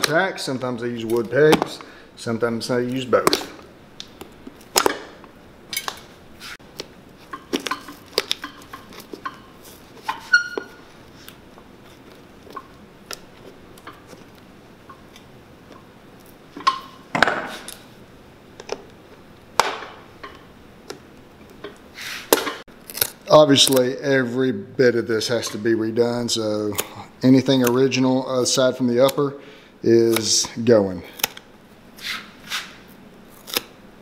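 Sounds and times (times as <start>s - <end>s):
sole tearing scrapes: 6.4s - 6.6s, 32.0s - 33.8s
knife and pincers prying tacks: 31.1s - 33.8s.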